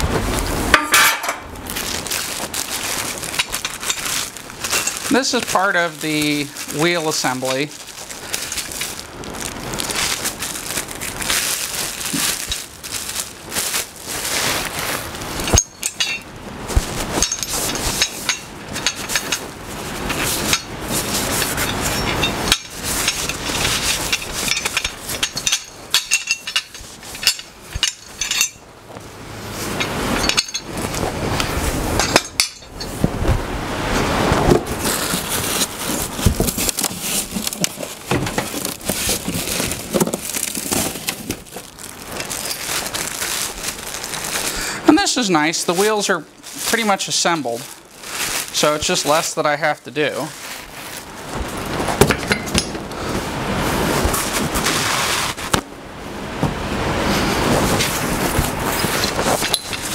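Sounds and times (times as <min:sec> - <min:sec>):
metal parts clinking: 0:00.7 - 0:01.5, 0:02.1 - 0:09.1, 0:15.3 - 0:16.3, 0:17.1 - 0:28.7, 0:29.6 - 0:33.0, 0:36.5 - 0:44.4, 0:52.1 - 0:52.8, 0:58.7 - 0:59.9
plastic packaging crinkling: 0:01.4 - 0:33.4, 0:34.0 - 0:55.7, 0:57.4 - 0:59.9.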